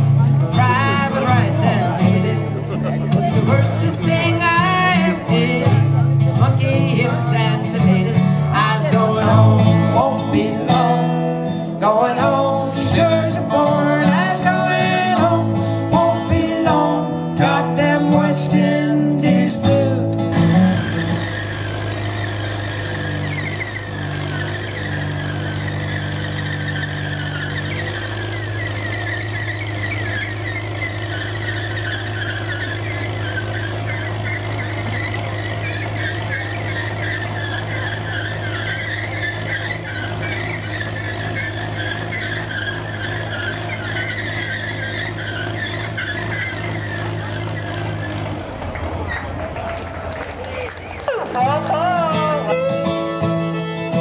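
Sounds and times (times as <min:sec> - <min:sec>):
tractor engine running: 0:00.0 - 0:54.0
chattering high squeal: 0:20.3 - 0:51.3.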